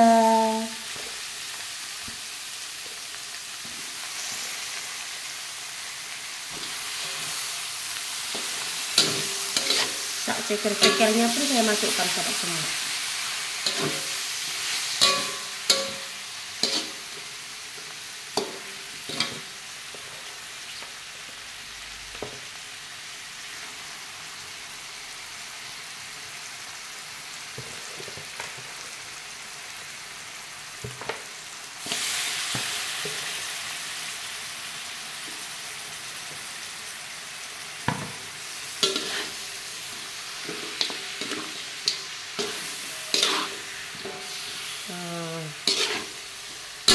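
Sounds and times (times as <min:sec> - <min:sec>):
chicken sizzling in a wok: 0:00.0 - 0:46.9
metal spatula scraping a wok: 0:06.5 - 0:17.3, 0:18.3 - 0:20.1, 0:38.8 - 0:46.9.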